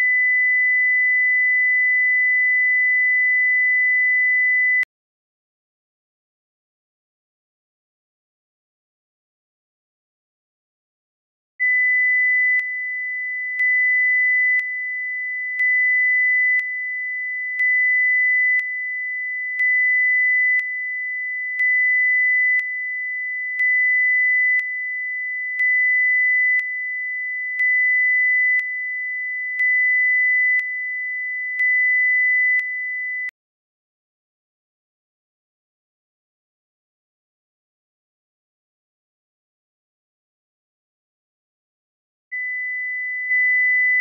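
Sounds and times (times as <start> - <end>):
sine test tone: 0.0 - 4.9, 11.6 - 33.4, 42.3 - 44.0.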